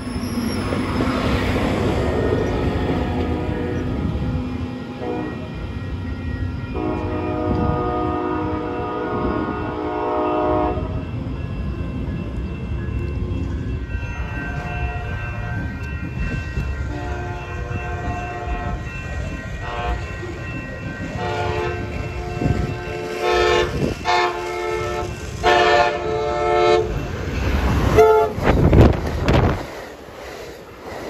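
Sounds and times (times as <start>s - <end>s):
train passing rumble: 0.0s - 31.0s
train horn blasts: 2.0s - 3.9s, 4.9s - 5.5s, 6.7s - 11.1s, 16.9s - 18.8s, 19.6s - 20.1s, 21.2s - 27.0s, 27.9s - 28.5s.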